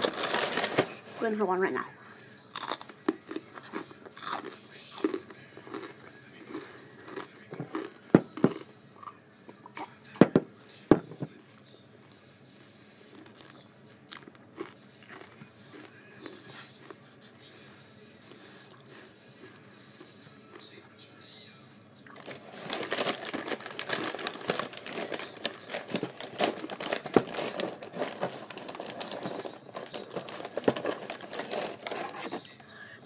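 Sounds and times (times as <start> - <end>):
crackers being crunched: 0.0 - 1.0, 2.5 - 9.2, 13.1 - 17.0, 22.1 - 32.6.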